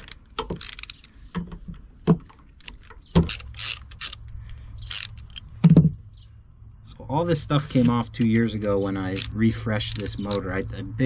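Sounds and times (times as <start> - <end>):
ratchet clicking: 0.0 - 1.1, 2.6 - 5.5, 8.6 - 10.6.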